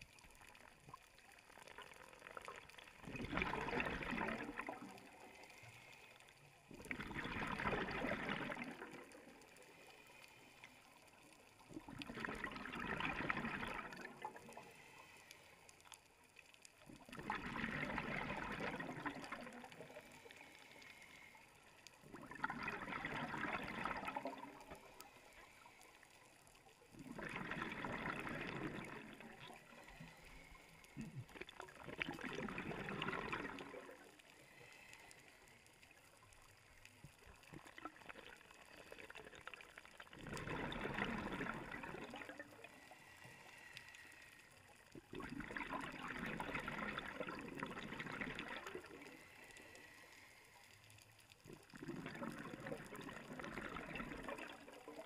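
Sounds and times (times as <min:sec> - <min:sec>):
regulator bubbles underwater: 0:00.0 - 0:15.2, 0:15.8 - 0:43.7, 0:44.6 - 0:49.8, 0:51.1 - 0:55.0.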